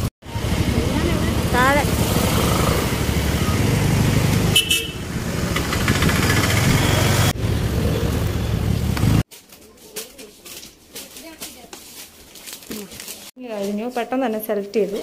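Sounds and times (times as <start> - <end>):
motorbike engine running: 0.0 - 9.2
vehicle horn toot: 4.5 - 5.0.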